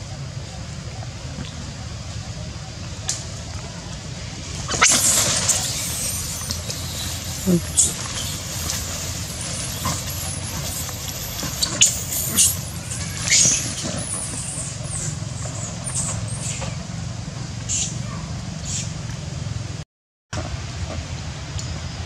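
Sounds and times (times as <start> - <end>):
macaques squealing: 4.7 - 16.7.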